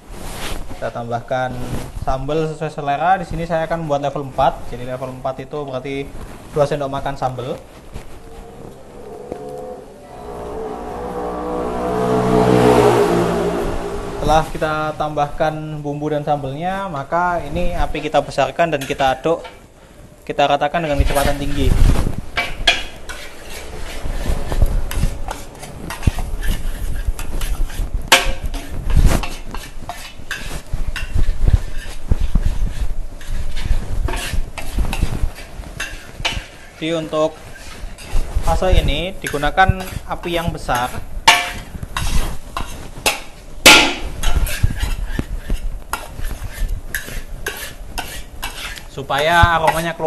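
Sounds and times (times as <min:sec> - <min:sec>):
metal spatula scraping a wok: 0:06.2 - 0:15.5, 0:20.8 - 0:50.0.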